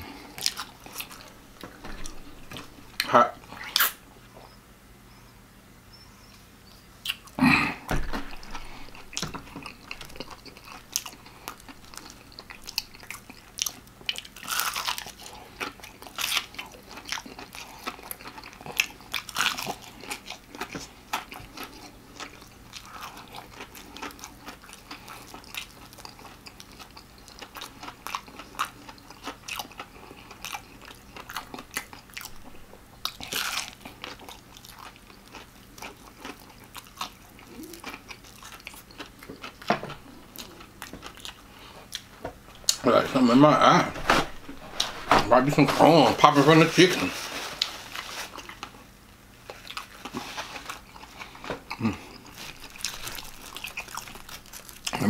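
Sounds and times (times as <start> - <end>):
crunchy fried chicken chewing: 0.0 - 4.0, 8.3 - 42.8, 46.8 - 55.0.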